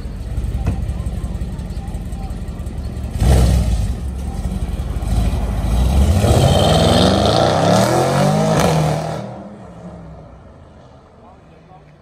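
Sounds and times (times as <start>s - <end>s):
car engine accelerating hard: 3.1s - 9.6s.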